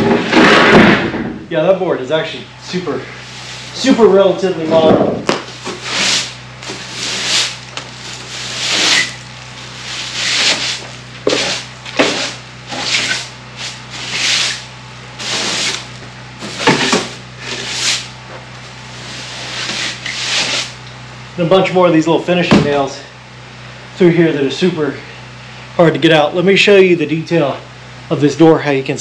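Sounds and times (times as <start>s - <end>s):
broom sweeping wooden floor: 2.7s - 20.8s
broom knocking against wood: 5.2s - 8.0s, 10.2s - 14.6s.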